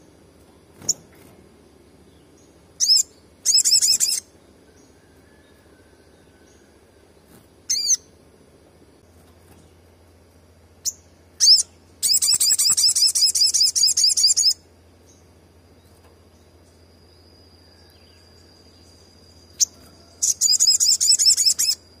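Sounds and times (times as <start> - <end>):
sunbird calling: 1.9 - 8.3, 9.0 - 22.0.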